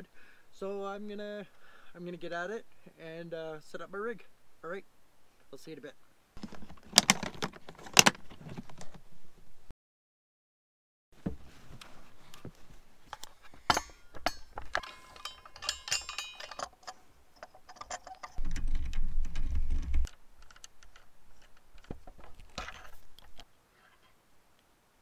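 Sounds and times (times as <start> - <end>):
metallic clicks and clinks: 13.2 - 19.0.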